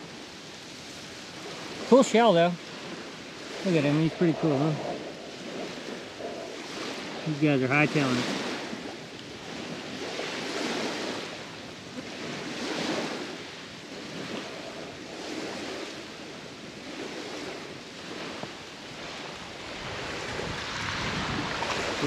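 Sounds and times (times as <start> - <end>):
small waves washing on beach: 0.0 - 22.0.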